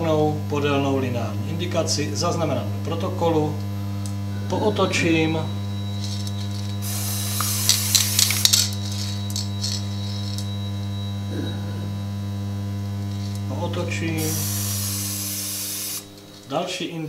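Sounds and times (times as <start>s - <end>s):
bench magnetizer humming: 0.0s - 17.0s
spray hissing in bursts: 6.8s - 9.0s, 14.2s - 16.2s.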